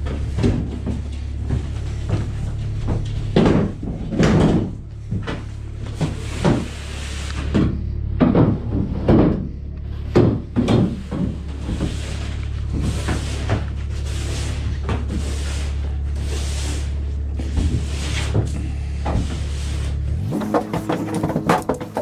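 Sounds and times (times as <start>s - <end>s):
folding chair clunks on plywood floor: 0.0s - 6.7s
steady low hum: 0.0s - 22.0s.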